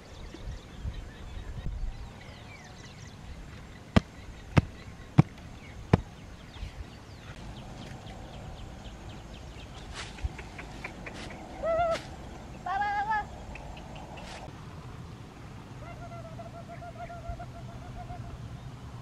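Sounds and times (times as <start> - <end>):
birds chirping faintly: 0.0 - 19.0.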